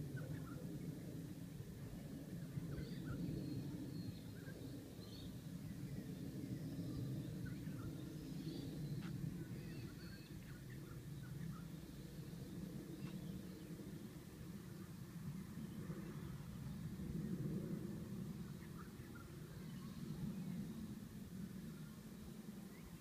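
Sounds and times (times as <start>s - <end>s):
faint bird chirps: 0.0s - 1.0s, 2.5s - 13.8s, 18.4s - 21.0s
low outdoor rumble: 0.0s - 23.0s.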